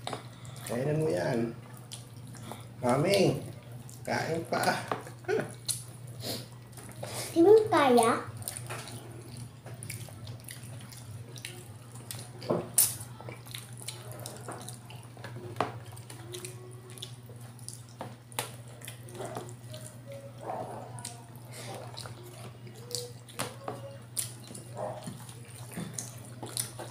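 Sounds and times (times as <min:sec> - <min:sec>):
wet chewing: 0:00.0 - 0:07.7, 0:08.3 - 0:26.9
lip smacks: 0:05.6 - 0:05.9, 0:08.5 - 0:14.8.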